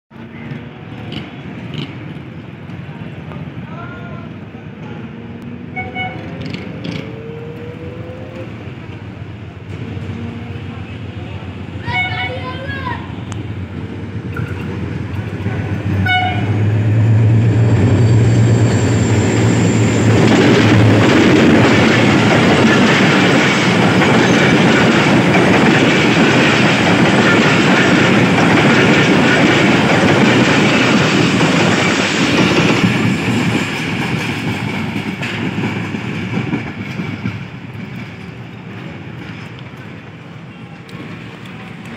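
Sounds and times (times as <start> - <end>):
train wheels clattering on rails: 0.2 - 2.9, 6.1 - 7.7, 12.7 - 41.9
diesel locomotive engine drone: 0.2 - 41.9.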